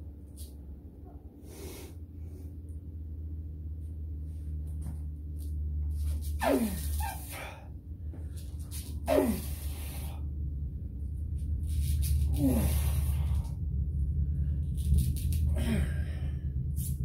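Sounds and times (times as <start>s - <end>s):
steady low hum: 0.0s - 17.0s
man breathing hard and straining: 1.4s - 2.7s, 6.4s - 10.5s, 11.7s - 14.8s, 15.4s - 17.0s
man grunting exhale: 9.1s - 10.2s, 12.3s - 13.5s, 15.5s - 16.4s.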